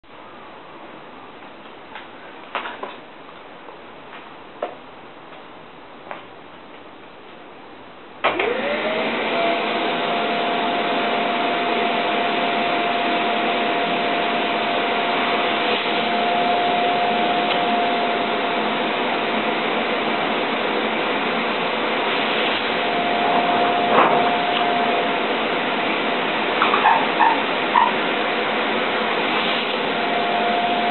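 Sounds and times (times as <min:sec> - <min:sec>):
vacuum cleaner whine: 0:08.2 - 0:30.9.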